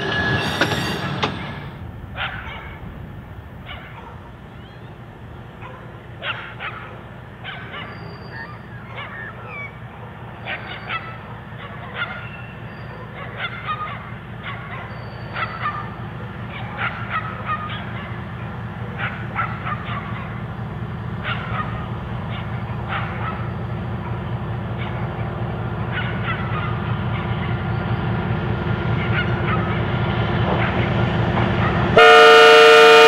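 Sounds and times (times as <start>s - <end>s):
railcar engine humming: 0.0s - 33.0s
bird calls: 3.7s - 18.2s.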